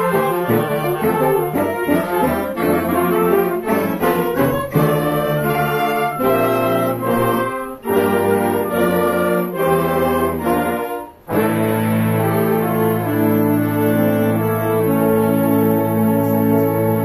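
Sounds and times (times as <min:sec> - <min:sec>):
wind band playing chords: 0:00.0 - 0:17.0.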